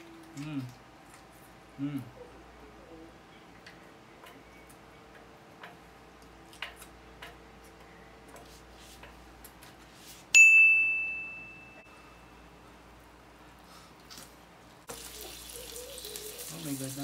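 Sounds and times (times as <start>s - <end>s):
chopsticks clicking while eating: 3.6s - 9.7s
bright bell-like ding: 10.4s - 12.4s.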